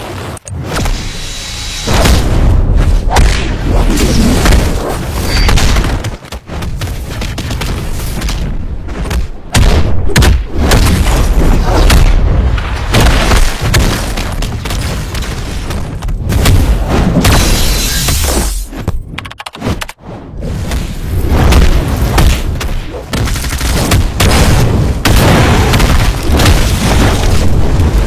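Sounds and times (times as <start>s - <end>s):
heavy booms and impacts: 1.8s - 3.6s, 23.8s - 28.0s.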